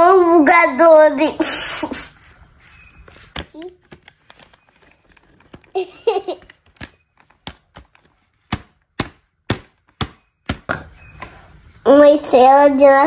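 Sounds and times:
person laughing: 5.7s - 6.5s.

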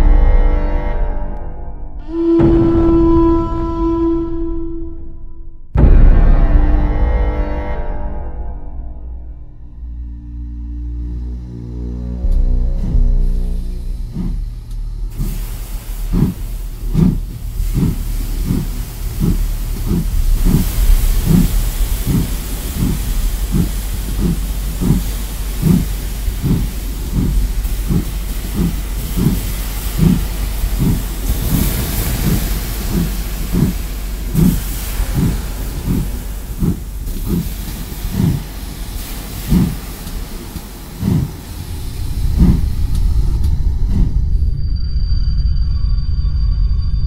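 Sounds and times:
slow low pulse: 0.0s - 47.0s
steam locomotive hissing: 11.8s - 44.7s.

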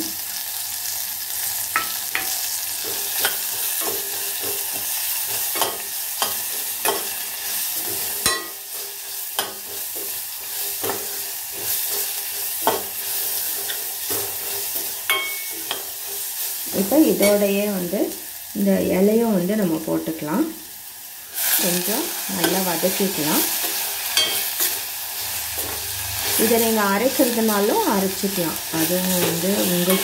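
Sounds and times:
spices sizzling in hot oil: 0.0s - 30.0s
spoon scraping and knocking pot: 1.7s - 16.3s, 23.7s - 24.8s.

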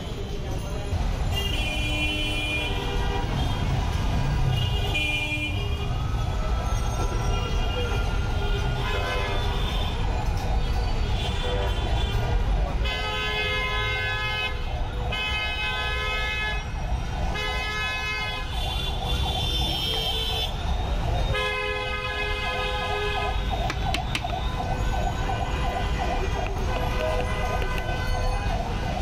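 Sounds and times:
vehicle horns blasting: 21.2s - 23.7s
siren wailing: 22.8s - 29.0s.

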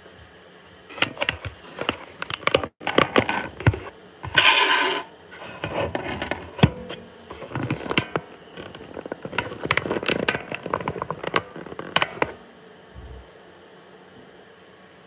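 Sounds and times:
handling noise on recorder: 0.9s - 12.4s.

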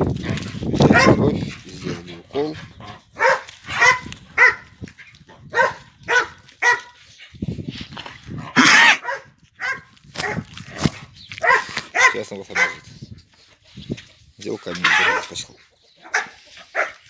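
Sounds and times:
dog barking: 0.9s - 1.3s, 3.2s - 4.8s, 5.5s - 7.0s, 8.6s - 10.5s, 11.4s - 12.9s, 14.8s - 15.4s, 16.0s - 17.0s.

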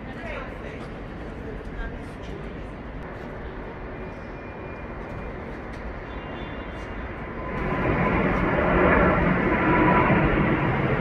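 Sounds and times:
jet airliner roar: 0.0s - 11.0s.

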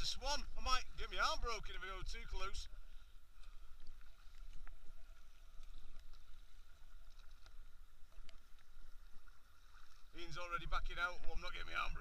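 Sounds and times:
paddle splashing in water: 2.7s - 11.9s
small water drips: 3.3s - 10.2s.

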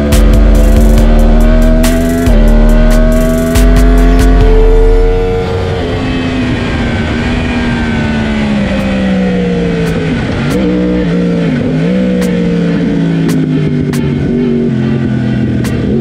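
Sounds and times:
motorcycle engine downshifting: 0.0s - 16.0s
heavy wind rush: 4.5s - 11.8s.

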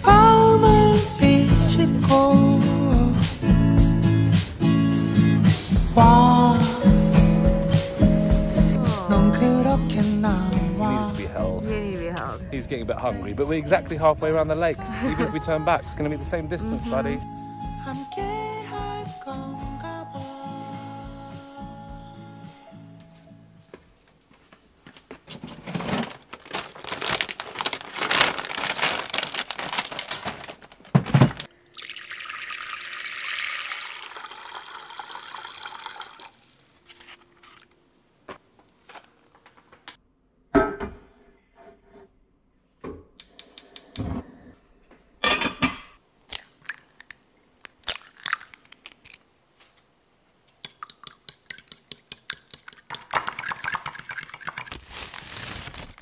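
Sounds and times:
kitchen clatter and knocks: 30.9s - 31.5s, 40.5s - 41.1s, 45.2s - 46.0s
water running into saucepan: 31.7s - 36.6s
fork beating eggs in bowl: 50.5s - 54.8s.

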